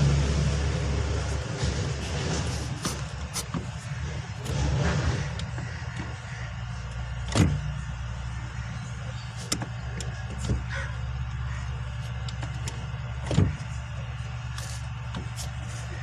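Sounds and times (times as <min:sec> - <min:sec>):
car engine low hum: 0:00.0 - 0:16.0
knocks and clicks from pedals: 0:01.4 - 0:06.3, 0:06.9 - 0:07.8, 0:12.2 - 0:13.8.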